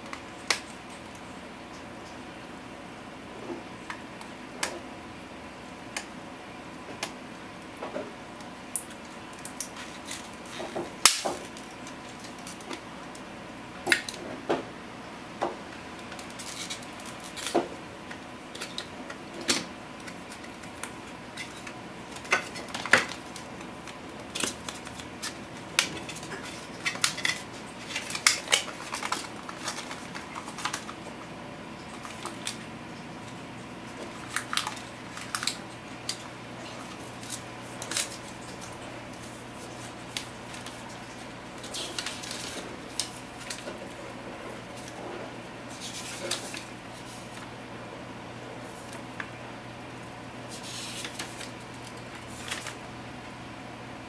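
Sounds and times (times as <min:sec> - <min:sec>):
plastic packaging clicking and rustling: 0:08.8 - 0:14.6, 0:16.0 - 0:32.7, 0:33.9 - 0:45.0, 0:45.7 - 0:47.5, 0:50.0 - 0:52.9.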